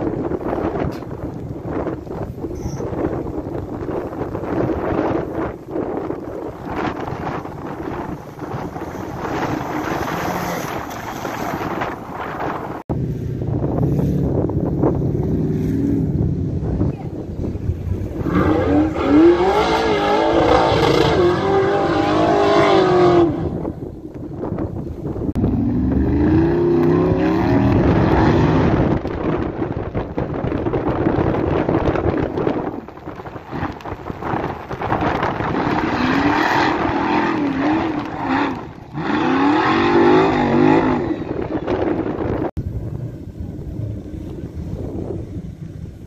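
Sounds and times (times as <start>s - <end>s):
off-road vehicle engine revving: 4.4s - 16.9s, 17.5s - 23.8s, 25.3s - 29.4s, 33.5s - 45.2s.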